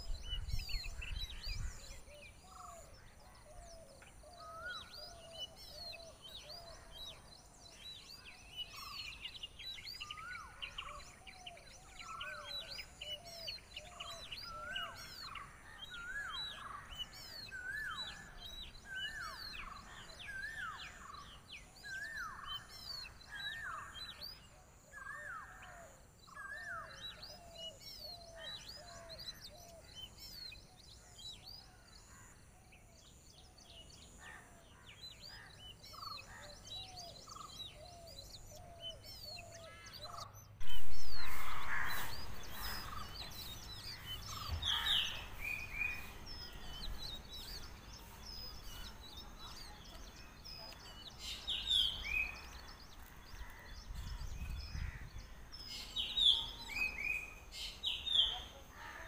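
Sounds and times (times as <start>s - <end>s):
birds chirping and calling: 0.0s - 59.0s.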